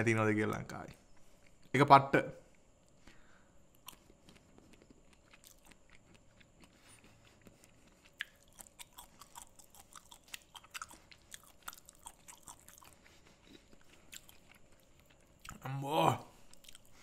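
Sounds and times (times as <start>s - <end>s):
person chewing nuts: 0.8s - 1.7s, 2.5s - 17.0s.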